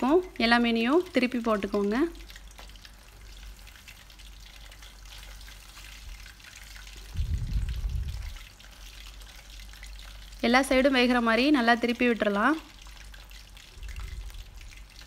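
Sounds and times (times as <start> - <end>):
fish deep-frying in oil: 0.0 - 15.0
low rumble: 7.1 - 8.4.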